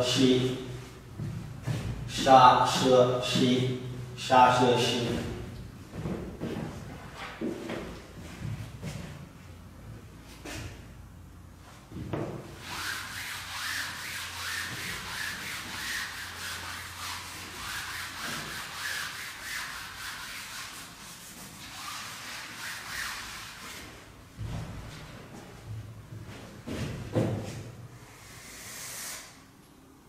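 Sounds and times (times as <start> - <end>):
eraser rubbing on chalkboard: 12.6 - 24.0.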